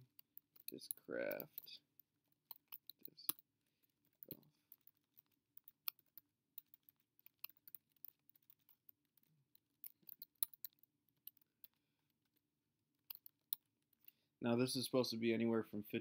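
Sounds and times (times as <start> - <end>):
typing on computer keyboard: 0.0 - 11.8.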